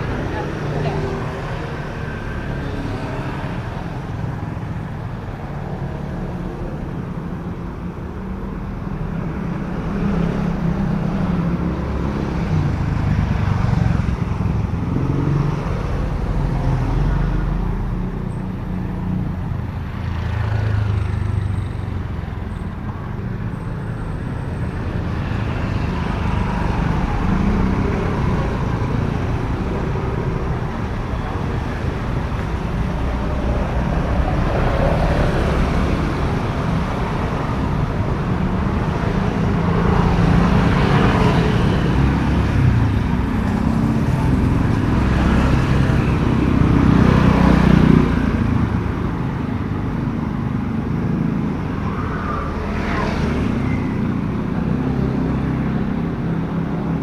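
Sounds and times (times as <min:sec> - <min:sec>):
cars passing: 0:00.0 - 0:57.0
motor scooters passing: 0:00.0 - 0:57.0.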